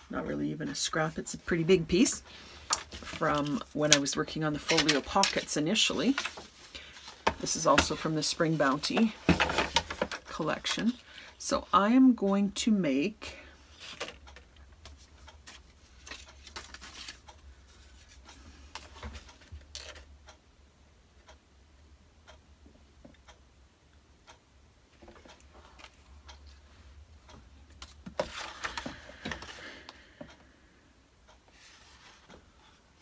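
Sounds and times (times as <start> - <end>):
paper ticks and clicks: 2.7 - 6.4, 13.8 - 17.4
paper rustling and scraping: 2.9 - 10.1, 15.4 - 20.0, 28.0 - 29.6.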